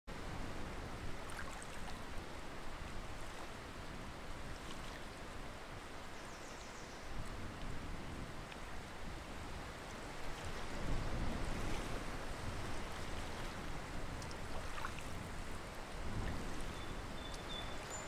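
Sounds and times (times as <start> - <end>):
faint high bird chirps: 16.7 - 18.0.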